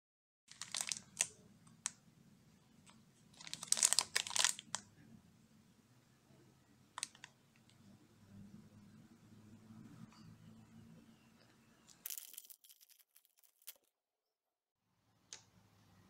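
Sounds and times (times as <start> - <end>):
plastic wrapper crinkling: 0.5 - 2.0, 2.8 - 4.8, 7.0 - 7.4.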